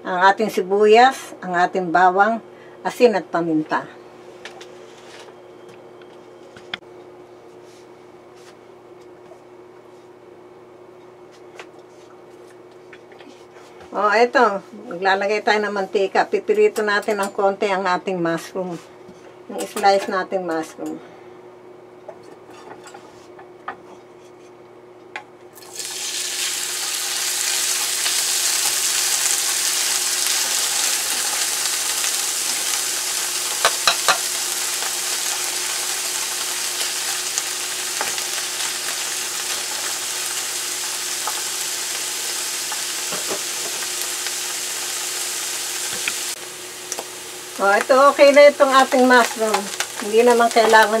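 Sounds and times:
mushrooms sizzling in oil: 25.6 - 51.0.

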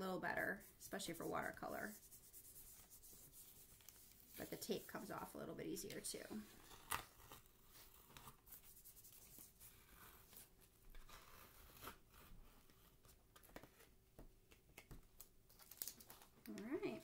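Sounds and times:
masking tape peeling crackles: 6.5 - 10.3, 15.2 - 17.0.

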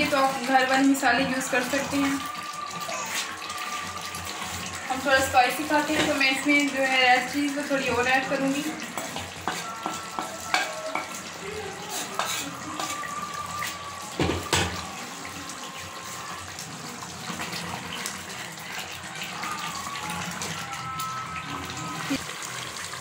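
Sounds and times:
curry bubbling and hissing in pot: 0.0 - 20.7, 21.4 - 23.0
wooden spoon scraping pot: 11.8 - 13.0.

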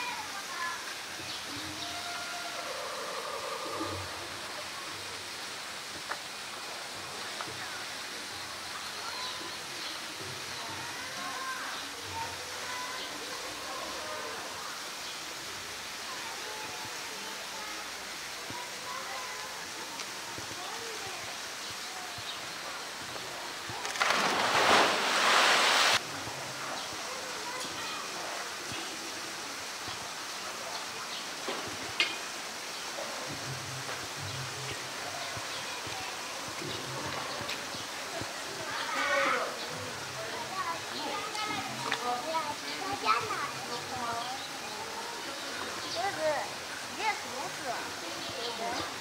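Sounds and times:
faint background voices: 0.0 - 49.0
big water splash: 23.7 - 26.0.

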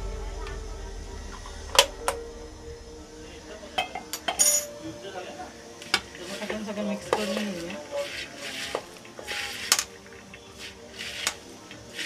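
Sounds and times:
hands tossing leaves in bowl: 6.2 - 9.9.

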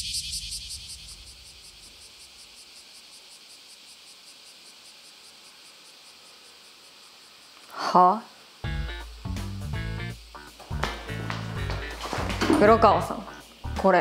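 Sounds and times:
insects chirring: 0.0 - 14.0.

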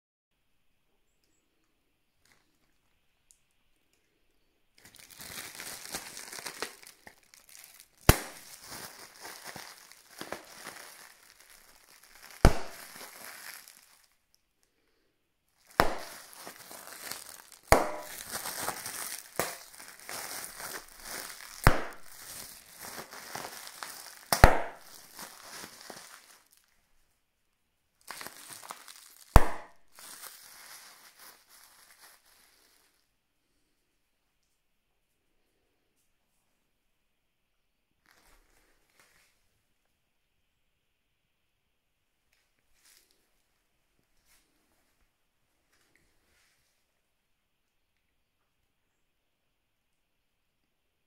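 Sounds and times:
plastic air pillows crinkling: 4.8 - 14.3, 15.6 - 26.8, 28.0 - 33.0, 38.0 - 39.4
air pillows popping: 12.2 - 13.8, 15.7 - 26.3.

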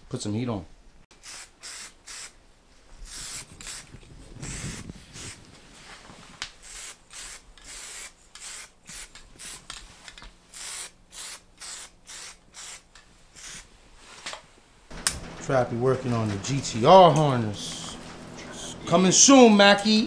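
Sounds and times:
spray paint can hissing bursts: 1.1 - 2.4, 3.0 - 5.4, 6.6 - 9.7, 10.5 - 13.7.

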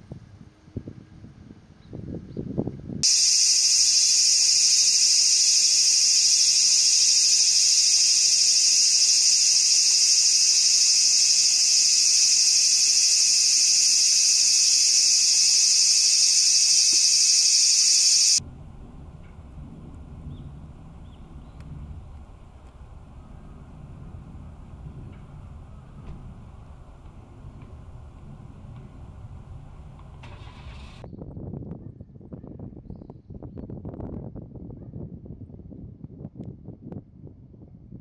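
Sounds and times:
shrill insect chorus: 3.0 - 18.4.

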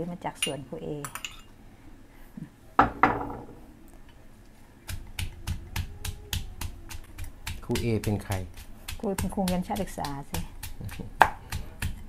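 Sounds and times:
pestle pounding in a mortar: 4.8 - 12.0.

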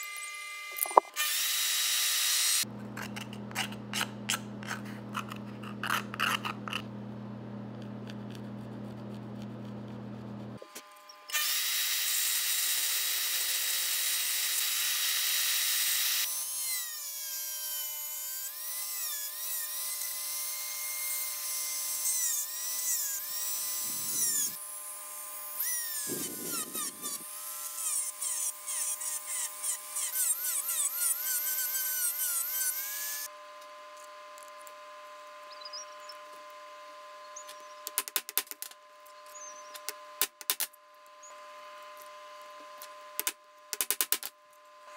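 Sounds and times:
bandsaw cutting plastic: 0.0 - 6.9, 10.6 - 33.3
rotary tool whining: 0.0 - 6.9, 7.8 - 43.4.

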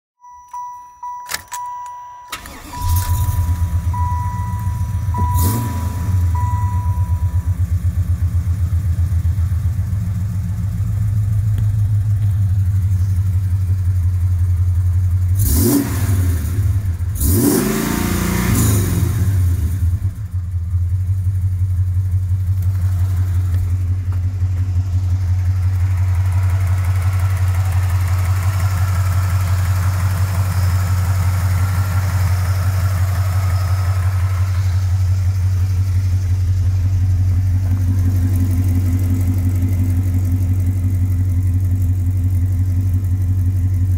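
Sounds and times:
dashboard warning chime: 0.2 - 8.1
car engine starting and idling: 0.2 - 43.9
car engine revving: 2.4 - 12.3, 15.4 - 20.3.

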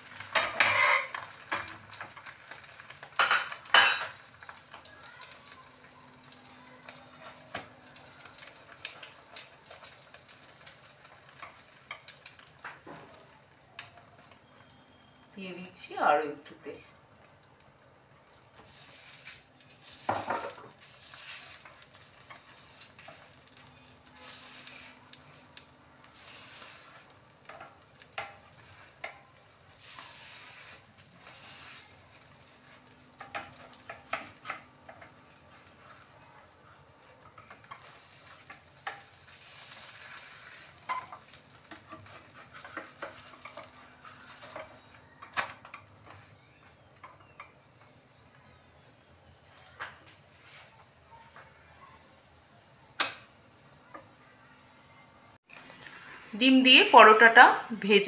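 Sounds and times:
oil sizzling in pan: 0.0 - 57.5
wooden spatula scraping pan: 37.4 - 45.0.

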